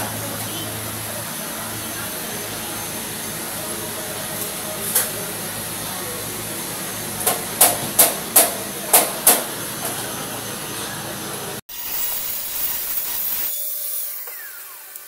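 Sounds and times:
steady background noise: 0.0s - 11.6s.

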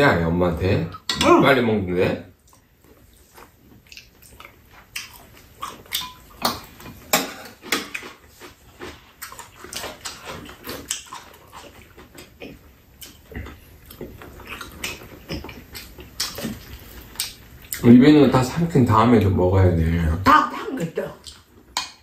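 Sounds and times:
person chewing: 2.4s - 17.8s.

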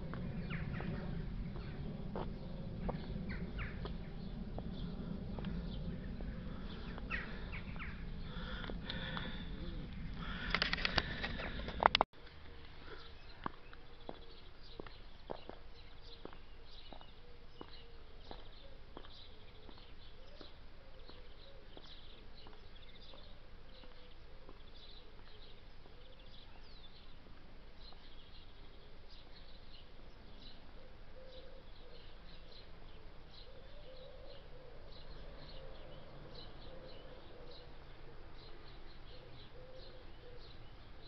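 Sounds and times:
high-heeled footsteps on pavement: 0.0s - 7.2s, 13.4s - 25.4s
small birds chirping: 0.0s - 41.0s.

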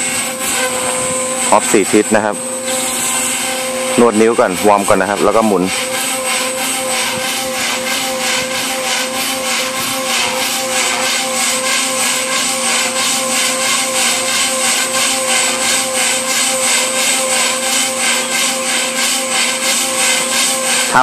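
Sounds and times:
model helicopter motor whine: 0.0s - 21.0s
rotor blades swishing: 0.0s - 21.0s.

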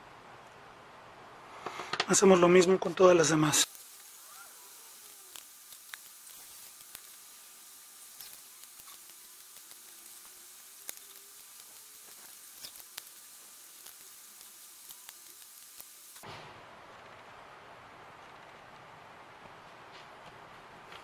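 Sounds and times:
faint hiss: 0.0s - 16.4s
small wooden parts clicking: 3.7s - 16.2s.

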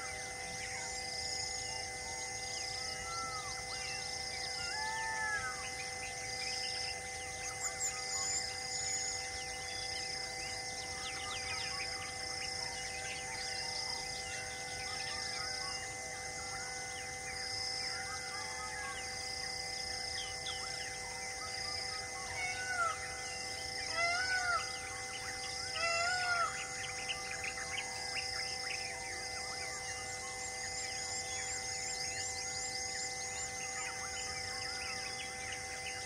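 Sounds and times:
high bird call: 23.9s - 27.6s.

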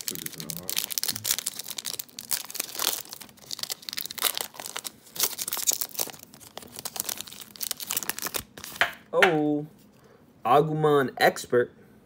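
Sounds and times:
foil wrapper crinkling and tearing: 0.0s - 8.9s.

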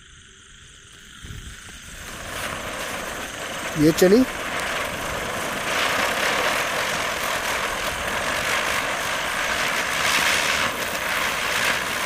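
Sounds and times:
ground spinner firework hissing: 0.0s - 12.0s.

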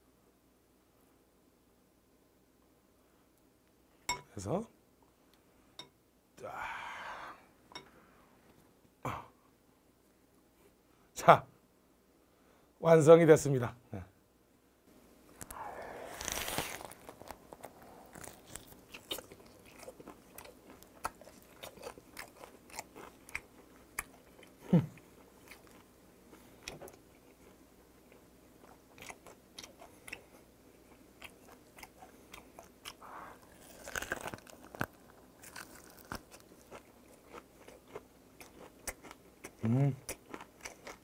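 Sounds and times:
wet crunching and chewing: 15.4s - 41.0s.

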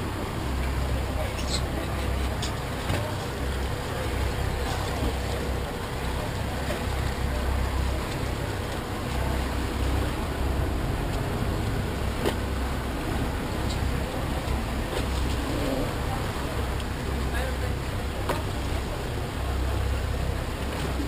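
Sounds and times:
speedboat engine rumble: 0.0s - 21.0s
wind and water rushing: 0.0s - 21.0s.

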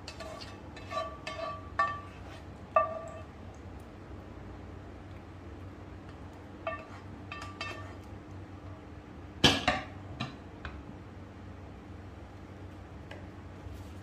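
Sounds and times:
kitchenware clattering: 0.0s - 3.3s, 6.7s - 8.0s.

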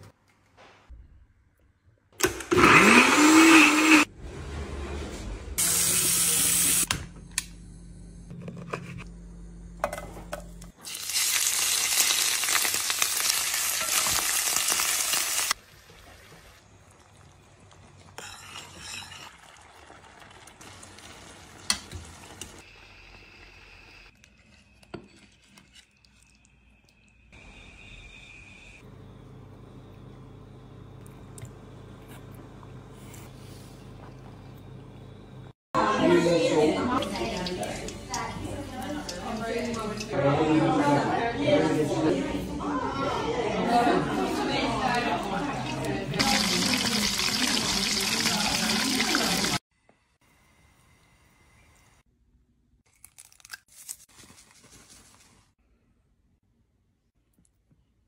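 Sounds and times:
squid sizzling in oil: 10.8s - 15.6s, 46.2s - 49.6s.

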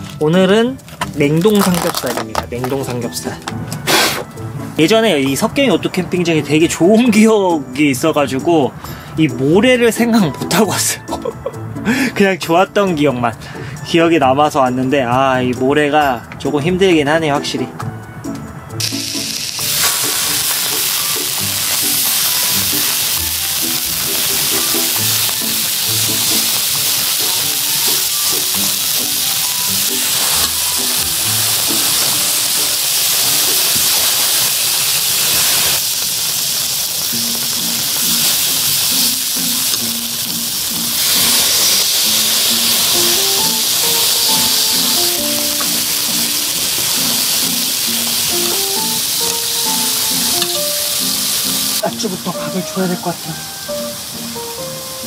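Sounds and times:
background music with simple melody: 0.0s - 55.0s
meat sizzling in a pan: 18.8s - 54.8s.

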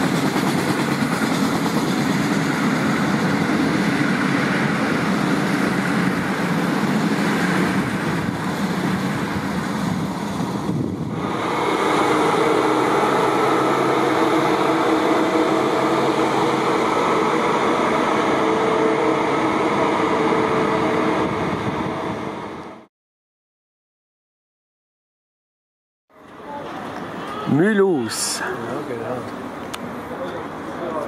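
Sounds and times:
train rolling on rails: 0.0s - 22.9s, 26.1s - 31.0s
electric train hum with tones: 1.1s - 22.9s.

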